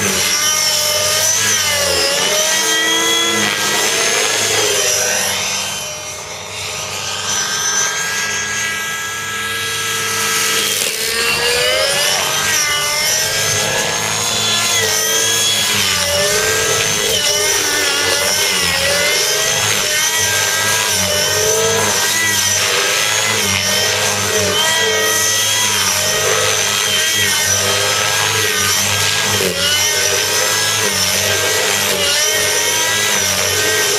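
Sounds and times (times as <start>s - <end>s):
rc helicopter engine high revs: 0.0s - 33.9s.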